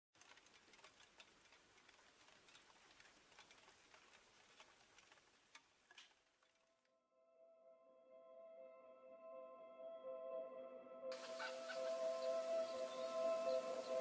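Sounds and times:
wood fire crackling: 0:00.2 - 0:06.8.

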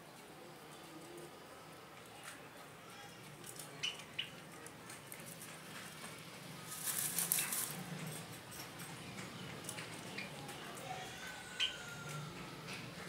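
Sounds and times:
bird rustling and scratching: 0:03.2 - 0:10.8.

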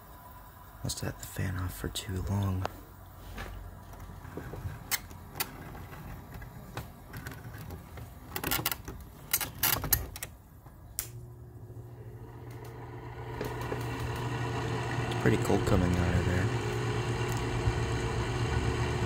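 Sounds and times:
air conditioner humming: 0:00.0 - 0:19.0
air conditioner control clicks: 0:08.4 - 0:11.3, 0:12.4 - 0:14.3.

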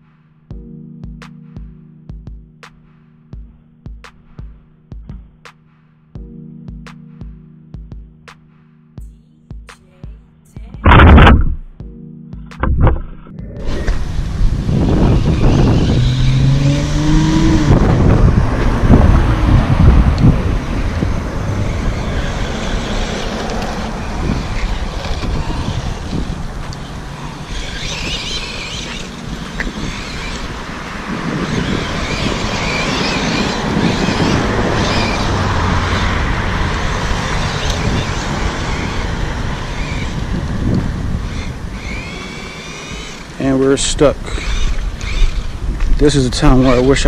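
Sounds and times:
electric motor whining: 0:13.5 - 0:47.0.

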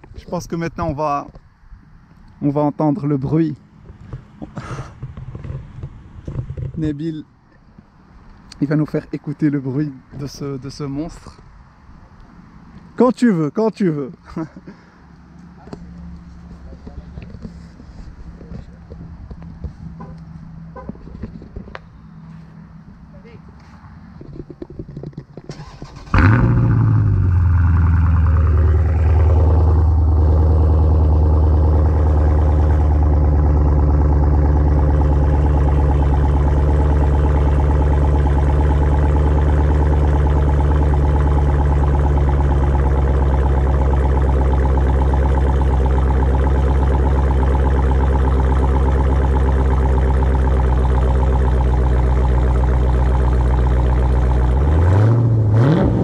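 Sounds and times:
car engine starting and idling: 0:24.6 - 0:56.0.

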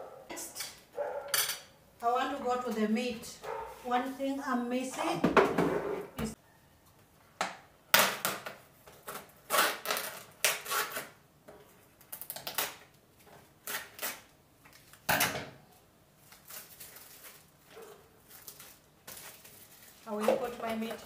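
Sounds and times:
scissors cutting plastic film: 0:08.0 - 0:11.2, 0:12.0 - 0:13.0, 0:13.6 - 0:15.1, 0:16.2 - 0:17.4, 0:18.2 - 0:21.0
plastic crinkling: 0:16.2 - 0:21.0.

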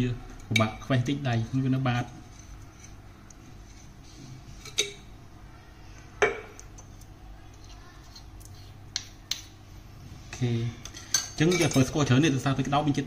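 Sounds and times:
low steady hum: 0:00.0 - 0:13.0
metal spoons clinking on a plate: 0:10.9 - 0:12.0.

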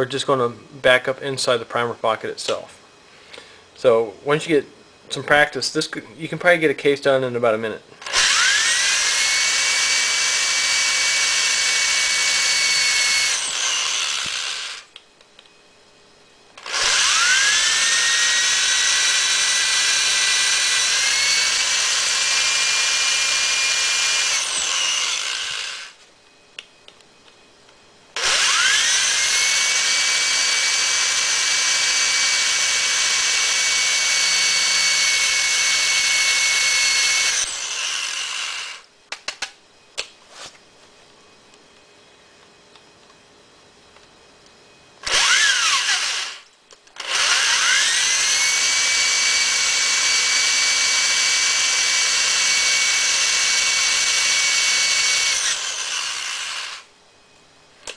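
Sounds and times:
electric drill whining: 0:08.0 - 0:15.0, 0:16.6 - 0:26.0, 0:28.1 - 0:38.9, 0:45.0 - 0:56.9.

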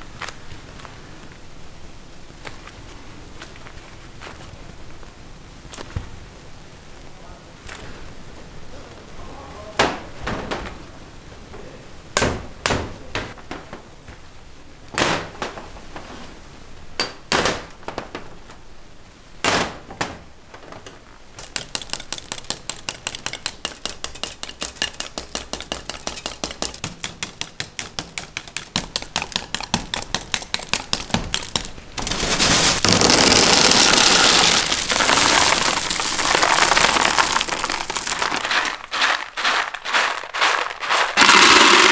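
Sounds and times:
knife chopping candy: 0:21.4 - 0:31.7
candy pieces rattling: 0:32.1 - 0:41.9
candy clicks and clinks: 0:33.1 - 0:41.9.

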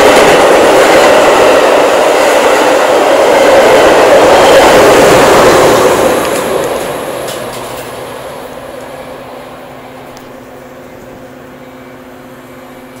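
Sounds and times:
train rushing past: 0:00.0 - 0:13.0.

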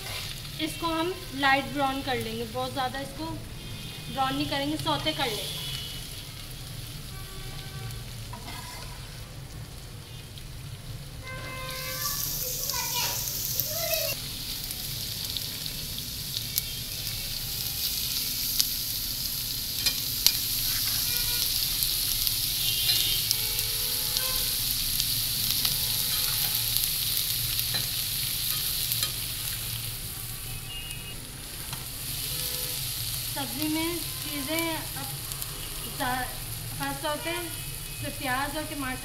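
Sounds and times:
vegetables sizzling in hot oil: 0:00.0 - 0:39.0
metal spatula scraping pan: 0:08.3 - 0:09.1, 0:19.8 - 0:21.2.

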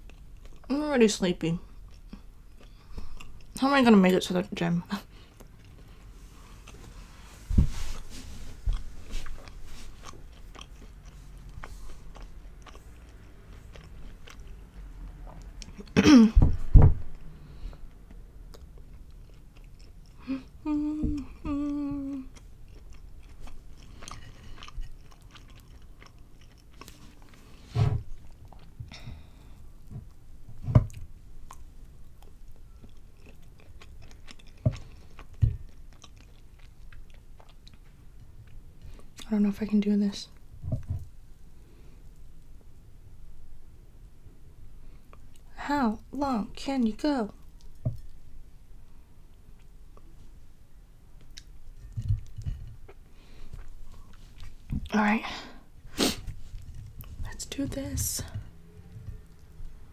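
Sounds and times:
wet chewing with mouth clicks: 0:00.0 - 0:00.7, 0:01.6 - 0:03.6, 0:05.0 - 0:07.2, 0:08.0 - 0:16.0, 0:17.7 - 0:30.2, 0:30.9 - 0:39.3, 0:47.3 - 0:48.3, 0:51.2 - 0:55.0, 0:56.0 - 0:57.4, 0:58.2 - 0:59.9
person humming: 0:20.2 - 0:22.4.

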